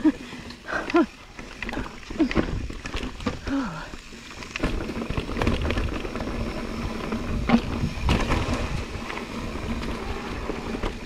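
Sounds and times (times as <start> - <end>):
bike clicking and rattling: 0.0 - 11.0
tyres rumbling on dirt trail: 0.0 - 11.0.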